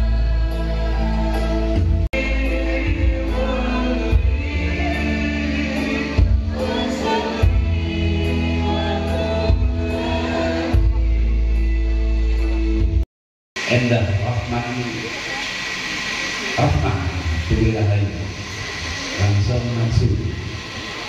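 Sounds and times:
person singing: 0.0 - 11.7
deep bass line: 0.0 - 13.0.

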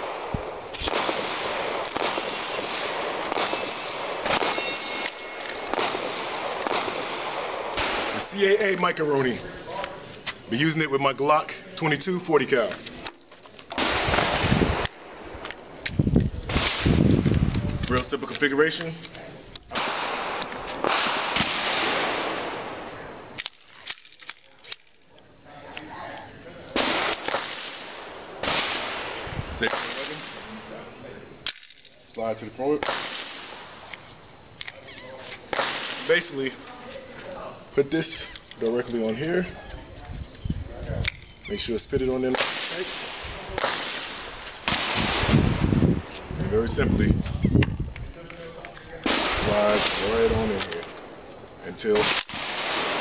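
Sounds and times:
gunshot with echo: 0.0 - 8.2, 13.8 - 14.9, 16.5 - 17.1, 19.7 - 22.8, 26.8 - 30.8, 32.8 - 33.8, 35.5 - 36.3, 42.3 - 45.6, 49.0 - 50.6, 51.9 - 53.0
sharp gunshot cracks: 0.0 - 8.2, 13.7 - 15.5, 16.5 - 17.2, 19.7 - 22.8, 26.8 - 30.8, 32.8 - 33.9, 35.5 - 36.2, 42.3 - 45.8, 49.0 - 50.7, 51.8 - 53.0.

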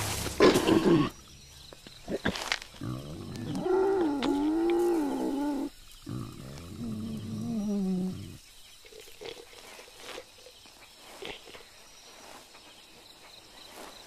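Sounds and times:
low steady animal call: 0.4 - 12.0
tiger growling: 2.0 - 10.2.

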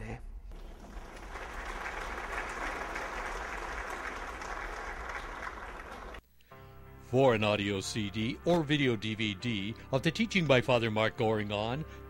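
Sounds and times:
congregation applauding: 0.5 - 6.2.

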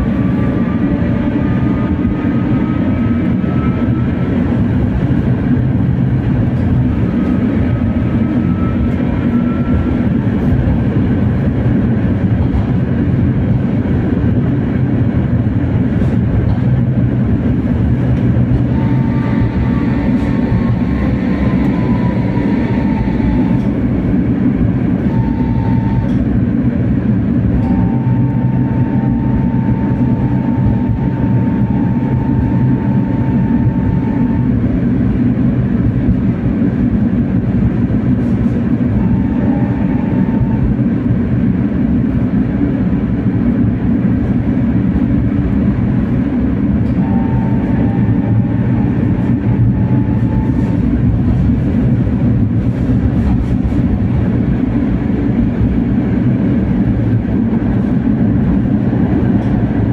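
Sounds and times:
tram rumbling on track: 0.0 - 59.9
faint whine gliding down: 27.6 - 35.1, 46.8 - 52.5.

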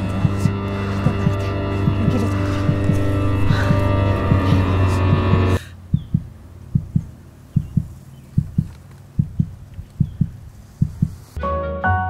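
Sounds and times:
music: 0.0 - 5.6, 11.4 - 12.0
slow heartbeat thumps: 0.0 - 11.2.

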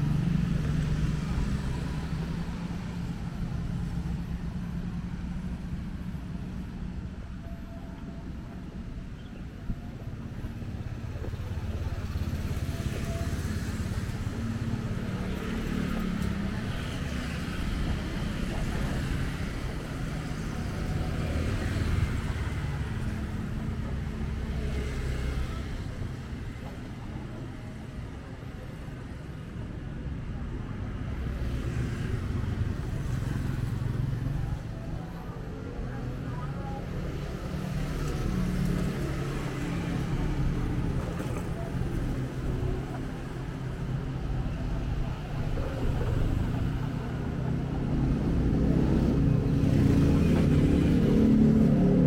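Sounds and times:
vehicles passing: 8.2 - 52.0.

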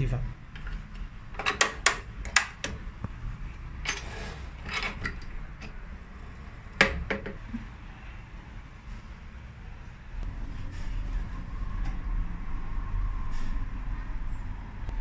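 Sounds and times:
low machine hum: 0.0 - 15.0
wood scraping on metal table: 3.8 - 5.2
wooden workpiece knock: 6.8 - 7.4.

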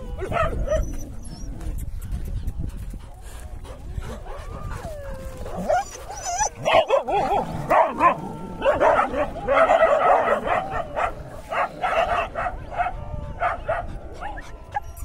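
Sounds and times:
dogs barking and yelping: 0.0 - 1.8, 3.6 - 15.0.

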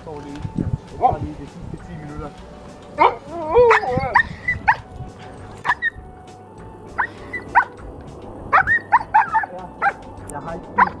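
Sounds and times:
dog barking: 3.0 - 4.8, 5.6 - 6.0, 7.0 - 7.7, 8.5 - 10.0, 10.8 - 11.0.

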